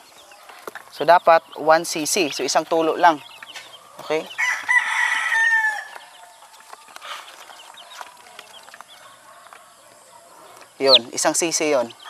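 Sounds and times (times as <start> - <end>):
chicks peeping: 0.0 - 12.0
rooster crowing: 3.8 - 10.6.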